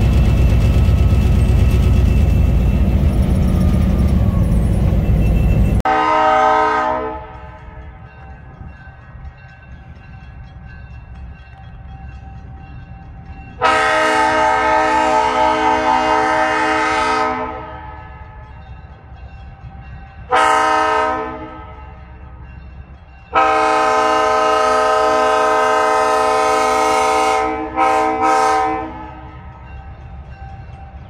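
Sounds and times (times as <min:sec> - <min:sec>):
low rumble of train: 0:00.0 - 0:31.0
locomotive air horn blasts: 0:05.8 - 0:07.8, 0:13.6 - 0:18.0, 0:20.3 - 0:22.0, 0:23.3 - 0:29.4.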